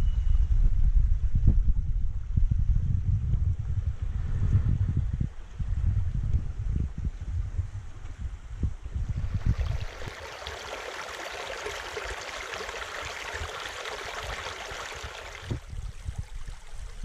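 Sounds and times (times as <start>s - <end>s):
creek water flowing: 9.0s - 17.0s.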